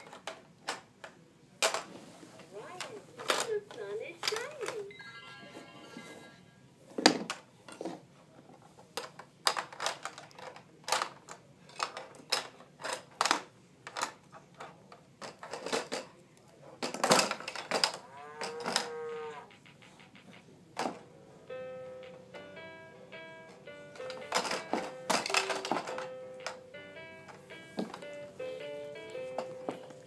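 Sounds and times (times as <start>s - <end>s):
plastic toy clicks and knocks: 0.0s - 1.9s, 2.8s - 4.9s, 8.9s - 16.1s, 16.8s - 18.9s, 24.0s - 26.6s.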